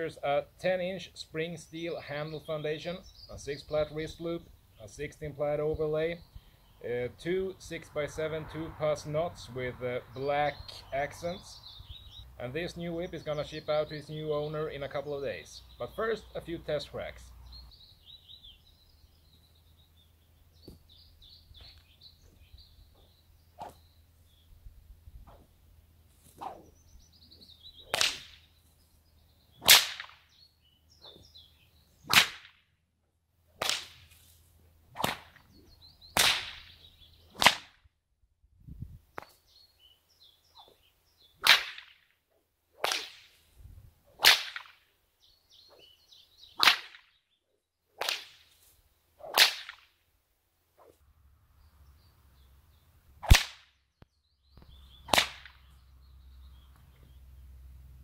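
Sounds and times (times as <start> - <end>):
bullwhip cracks: 23.6 - 23.8, 26.2 - 26.8, 27.8 - 28.5, 29.6 - 30.3, 32.0 - 32.7, 33.6 - 37.8, 41.4 - 42.1, 42.8 - 43.5, 44.1 - 44.9, 46.6 - 47.2, 48.0 - 50.0, 53.2 - 53.8, 55.1 - 55.6.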